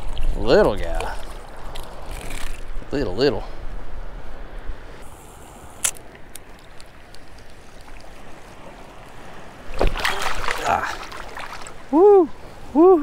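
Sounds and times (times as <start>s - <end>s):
surf water lapping: 4.1s - 13.0s.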